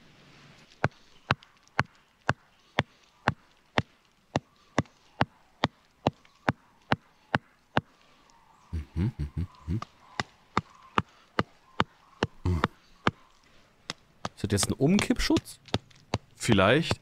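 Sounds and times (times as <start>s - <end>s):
stake being hammered into ground: 13.9s - 17.0s.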